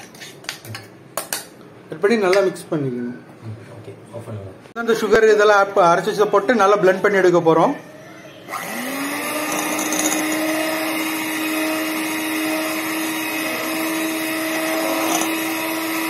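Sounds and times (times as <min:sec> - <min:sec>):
electric hand mixer whine: 0:08.5 - 0:16.0.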